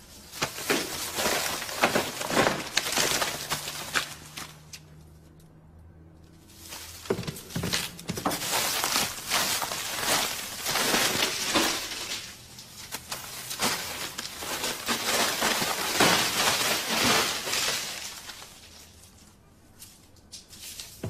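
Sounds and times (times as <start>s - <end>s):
banknotes and sacks rustling: 0.0s - 4.7s, 6.5s - 21.0s.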